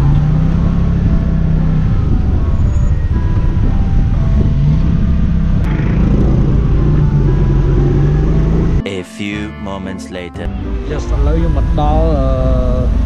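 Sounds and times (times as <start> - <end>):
vehicle engine humming: 0.0 - 8.8, 10.5 - 13.0
wind and road noise: 0.0 - 8.8.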